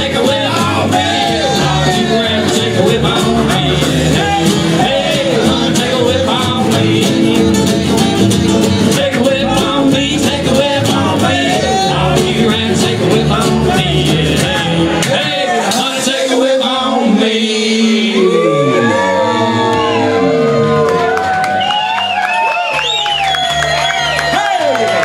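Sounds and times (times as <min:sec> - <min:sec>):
banjo: 0:00.0 - 0:16.4
person singing: 0:00.0 - 0:21.0
upright bass: 0:00.0 - 0:21.8
acoustic guitars: 0:00.0 - 0:25.0.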